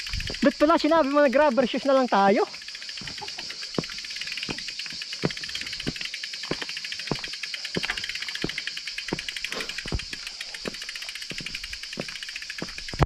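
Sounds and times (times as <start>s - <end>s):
bike freehub ticking: 0.0s - 13.0s
high insect drone: 0.0s - 13.0s
footsteps: 3.0s - 13.0s.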